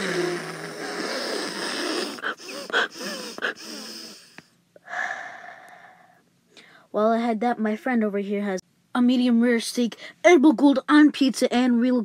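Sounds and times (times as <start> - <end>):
child wheezing and gasping: 0.0 - 6.1.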